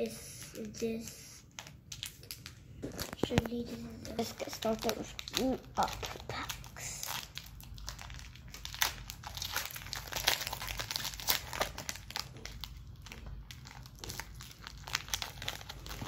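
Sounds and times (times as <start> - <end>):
foil wrapper crinkling: 0.4 - 16.0.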